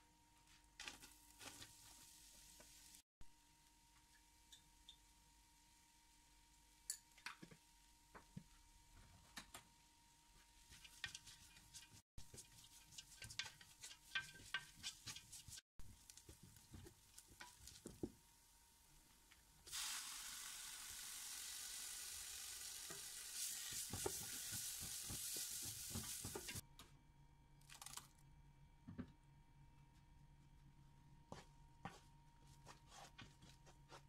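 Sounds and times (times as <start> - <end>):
onions sizzling: 0.8 - 3.0, 10.6 - 26.6
spatula scraping a pot: 10.7 - 15.6.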